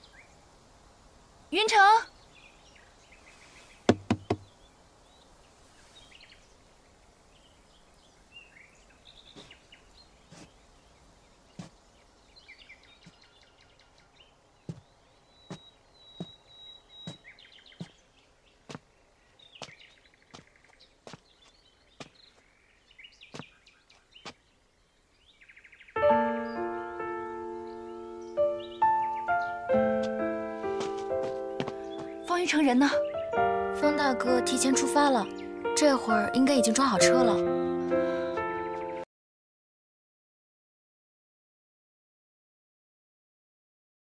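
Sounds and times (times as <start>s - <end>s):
birds chirping: 1.6s - 39.0s
short sharp knocks: 3.9s - 4.4s.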